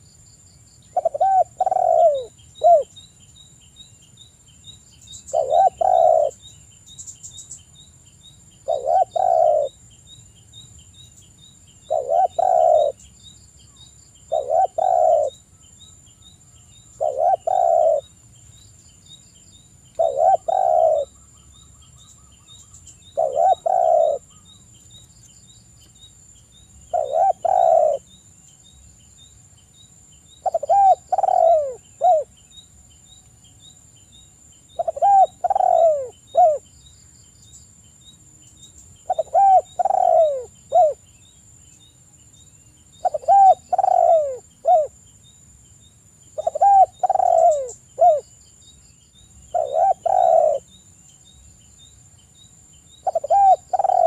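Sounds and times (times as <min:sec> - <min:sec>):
dove cooing: 0:00.9 - 0:02.9, 0:05.3 - 0:06.4, 0:08.6 - 0:09.8, 0:11.9 - 0:13.0, 0:14.3 - 0:15.4, 0:17.0 - 0:18.1, 0:20.0 - 0:21.2, 0:23.1 - 0:24.4, 0:26.9 - 0:28.0, 0:30.4 - 0:32.3, 0:34.8 - 0:36.6, 0:39.1 - 0:41.0, 0:43.0 - 0:45.0, 0:46.4 - 0:48.2, 0:49.5 - 0:50.7, 0:53.0 - 0:54.0.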